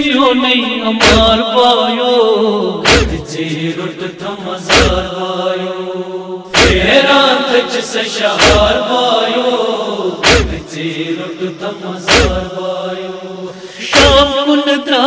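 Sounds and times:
crowd of men chanting: 0:00.9 - 0:01.6, 0:02.4 - 0:14.5
chest-beating thumps: 0:01.0 - 0:01.4, 0:02.8 - 0:03.3, 0:04.7 - 0:05.1, 0:06.5 - 0:06.9, 0:08.4 - 0:08.8, 0:10.2 - 0:10.7, 0:12.1 - 0:12.5, 0:14.0 - 0:14.3.

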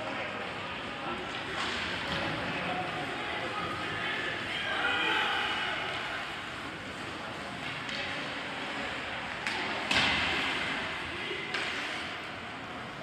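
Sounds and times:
spectators talking: 0:00.0 - 0:12.9
hockey puck and sticks knocking: 0:09.3 - 0:10.8, 0:11.4 - 0:12.1.

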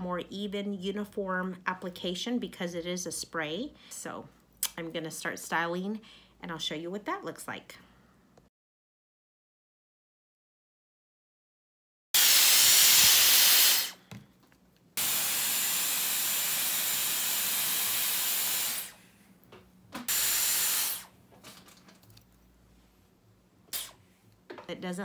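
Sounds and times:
hair styler blowing air: 0:12.2 - 0:14.0, 0:15.0 - 0:19.1, 0:20.1 - 0:21.1, 0:23.7 - 0:24.0.

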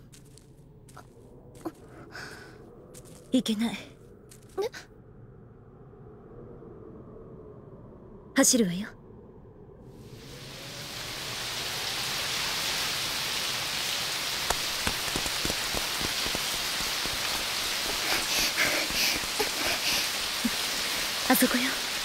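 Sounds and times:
heavy rain pouring: 0:10.0 - 0:22.0.

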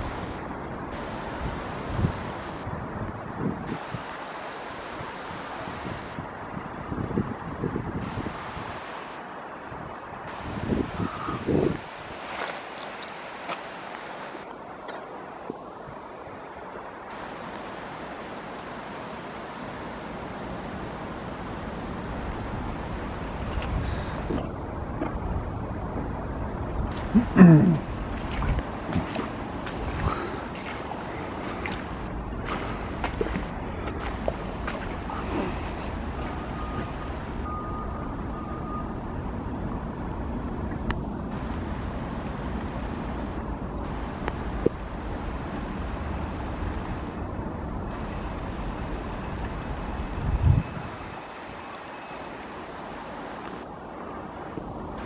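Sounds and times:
heavy rain hissing: 0:00.0 - 0:38.3, 0:41.3 - 0:55.0
low outdoor rumble: 0:20.3 - 0:50.9.

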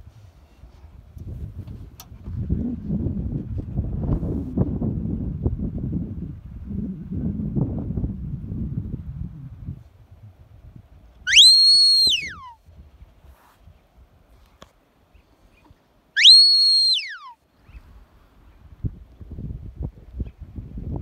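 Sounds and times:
long whistled commands: 0:11.3 - 0:12.6, 0:16.2 - 0:17.4.

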